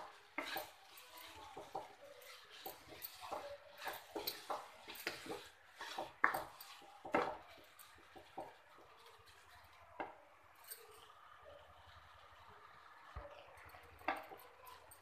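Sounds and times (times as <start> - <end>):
spatula scraping and knocking pan: 0.0 - 9.4.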